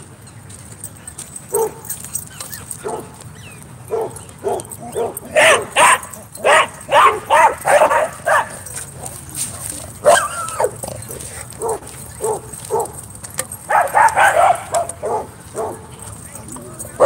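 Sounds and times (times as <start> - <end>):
dogs barking: 1.0 - 17.0
dog yelping: 1.5 - 9.1, 10.0 - 13.0, 13.7 - 15.8.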